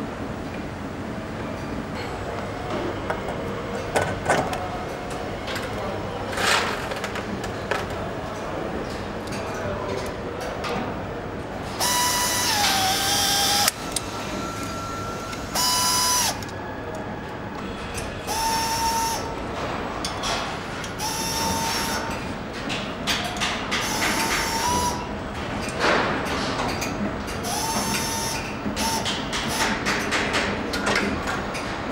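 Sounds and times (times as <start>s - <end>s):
power nutrunner whirring: 11.8s - 16.5s.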